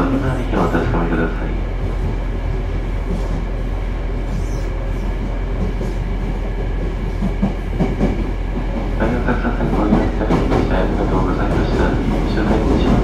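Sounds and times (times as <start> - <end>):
train wheels rumbling on rails: 0.0 - 13.0
rail clicks and knocks: 4.3 - 13.0.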